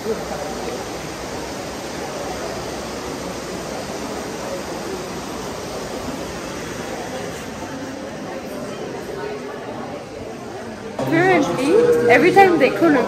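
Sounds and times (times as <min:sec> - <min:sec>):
heavy rain on a roof: 0:00.0 - 0:11.4.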